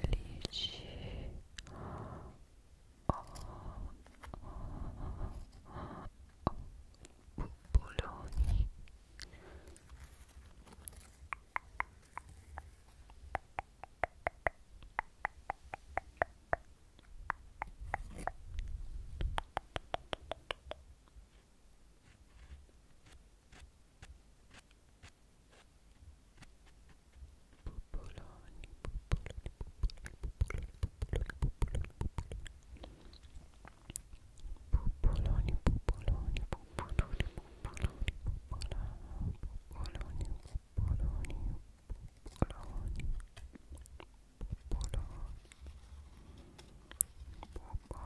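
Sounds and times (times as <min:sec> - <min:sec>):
wet mouth clicks and lip smacks: 0:11.1 - 0:20.8, 0:28.5 - 0:45.3.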